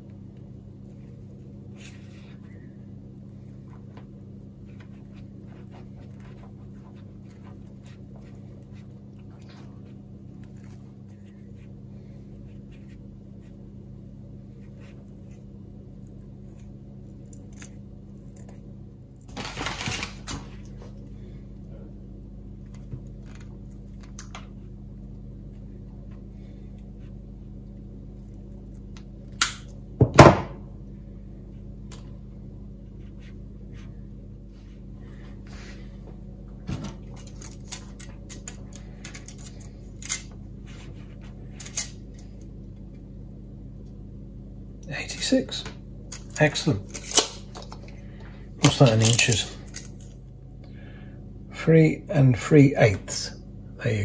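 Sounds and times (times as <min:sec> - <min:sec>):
low hum: 0:00.0 - 0:54.0
clicks and rustles of cable braid: 0:16.0 - 0:21.0, 0:36.8 - 0:43.0.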